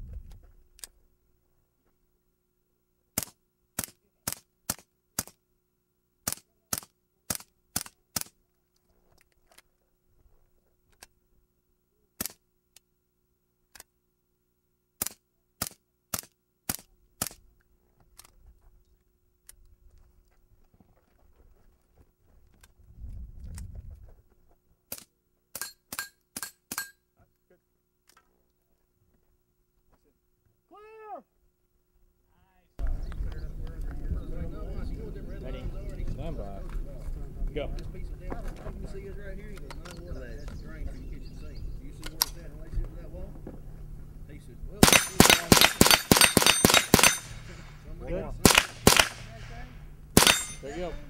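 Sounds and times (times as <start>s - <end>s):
rifle gunshots: 44.8s - 50.7s.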